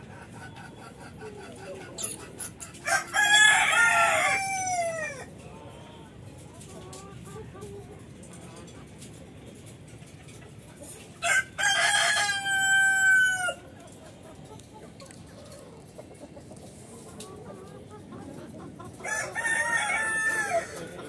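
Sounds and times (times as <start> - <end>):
rooster crowing: 2.8 - 5.3, 11.2 - 13.6, 19.0 - 21.0.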